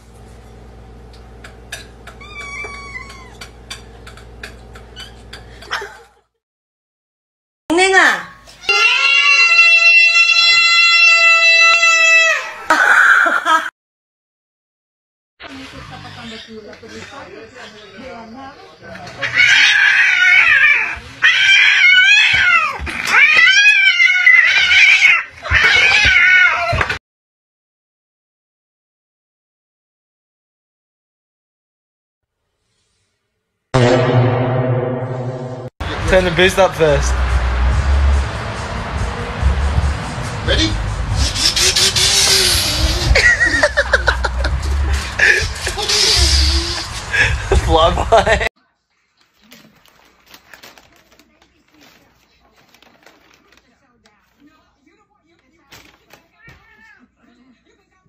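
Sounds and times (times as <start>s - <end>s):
cat yowling: 2.1s - 3.6s, 8.6s - 12.7s, 19.2s - 27.0s
kitten meowing: 2.2s - 3.5s, 8.6s - 12.4s.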